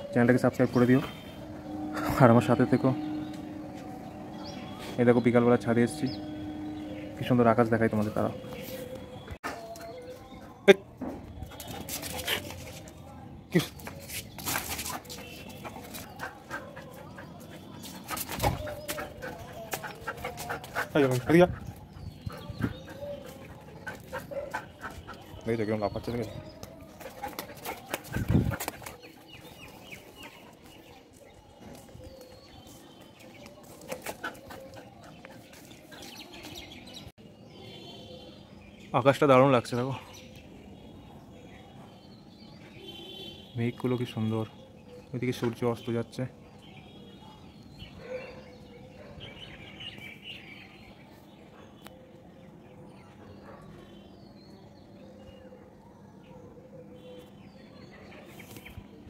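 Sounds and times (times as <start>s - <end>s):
outdoor background noise: 0.0s - 59.0s
small birds chirping: 0.0s - 59.0s.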